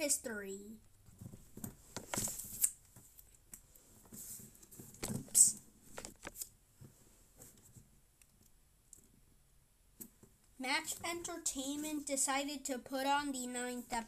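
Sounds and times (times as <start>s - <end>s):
soft rustles and taps: 0.9s - 8.0s.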